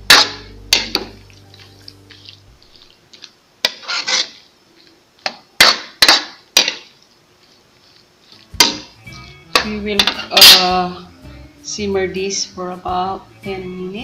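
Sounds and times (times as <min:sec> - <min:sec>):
spatula scraping a wok: 0:00.0 - 0:10.7.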